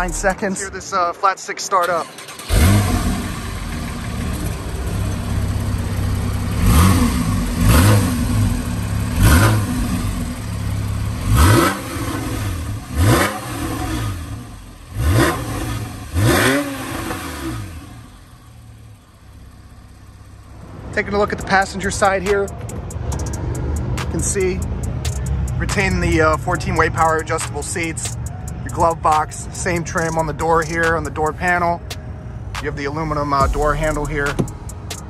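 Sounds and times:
car engine idling and revving: 0.0 - 35.0.

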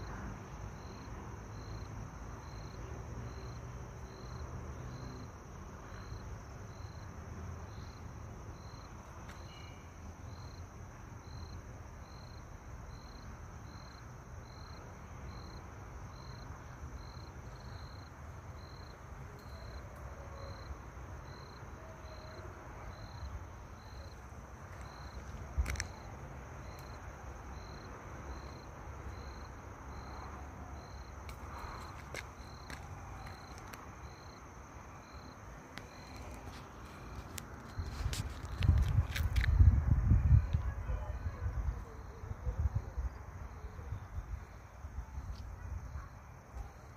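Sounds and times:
crickets chirping: 0.0 - 46.9
high insect trill: 0.0 - 46.9.

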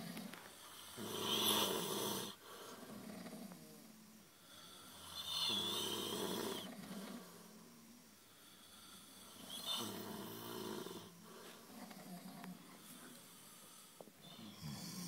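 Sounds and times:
quiet breath: 0.0 - 15.0
man snoring loudly: 0.8 - 2.4, 4.9 - 6.7, 8.7 - 11.1, 14.3 - 15.0.

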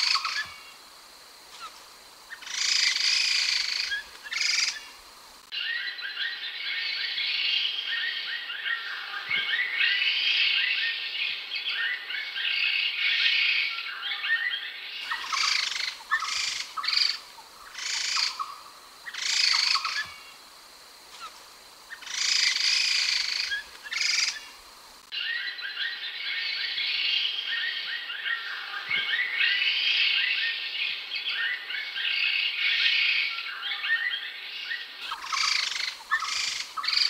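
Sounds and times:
bird chattering calls: 2.3 - 4.9, 15.0 - 20.2, 21.2 - 24.5, 35.0 - 37.0.

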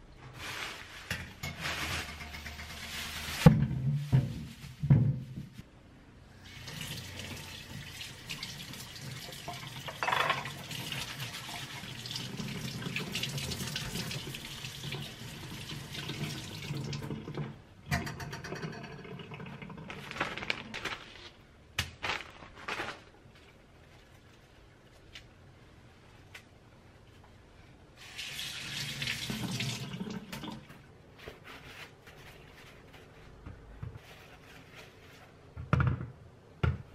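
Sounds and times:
plastic bag rustling: 0.2 - 5.6, 19.8 - 25.1.

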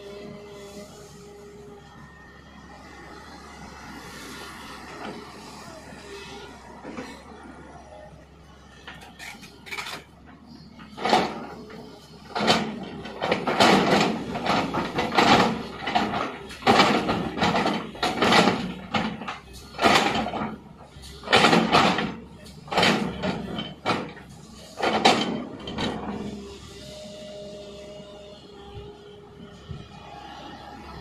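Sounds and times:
excavator bucket scraping stony soil: 9.0 - 27.9.

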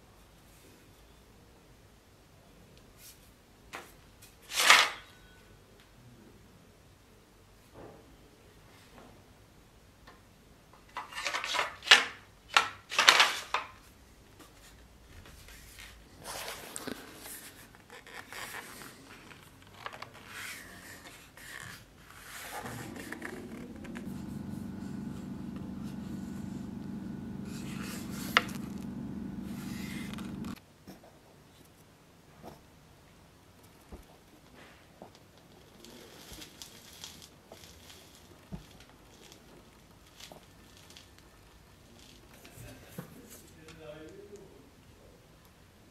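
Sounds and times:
steady low hum: 22.6 - 30.6.

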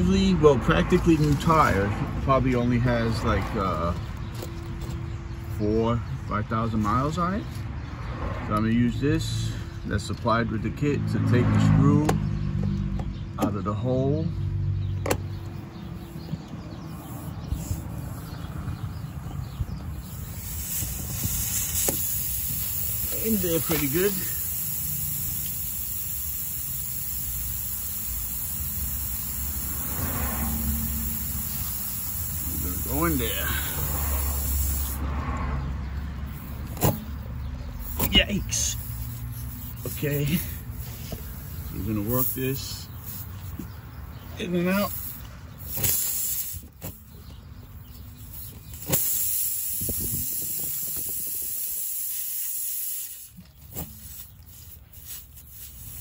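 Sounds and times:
constant high hiss: 20.2 - 35.0, 48.7 - 56.0.

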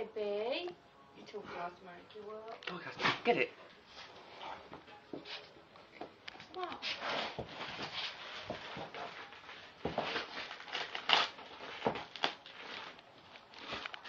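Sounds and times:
dog chewing crinkling plastic: 7.0 - 14.0.

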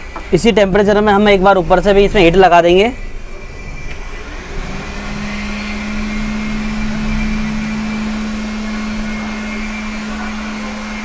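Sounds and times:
hot-air gun humming and blowing: 3.2 - 11.0.

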